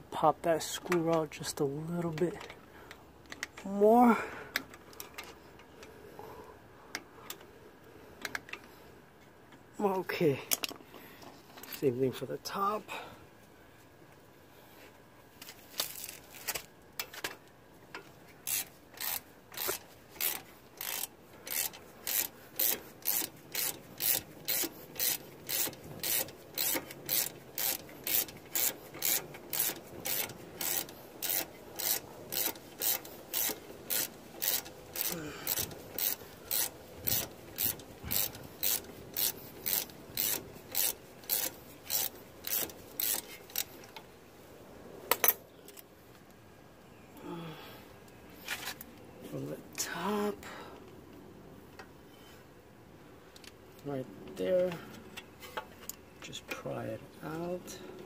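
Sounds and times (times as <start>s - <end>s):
hand ratchet clicking: 18.4s - 44.0s.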